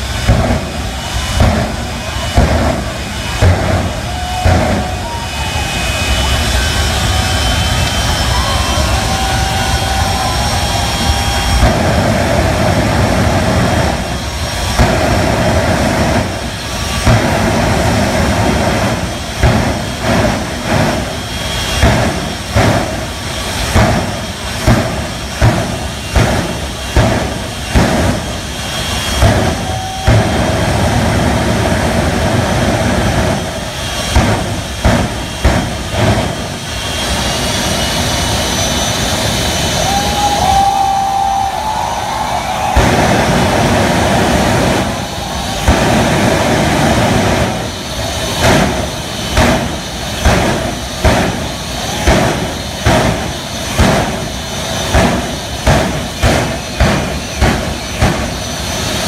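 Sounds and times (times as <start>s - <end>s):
jet engine roaring: 0.0s - 59.0s.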